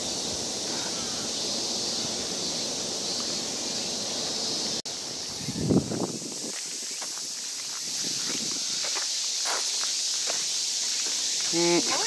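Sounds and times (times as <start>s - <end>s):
insects droning: 0.0s - 12.0s
wind on microphone: 5.2s - 6.8s, 7.8s - 8.9s.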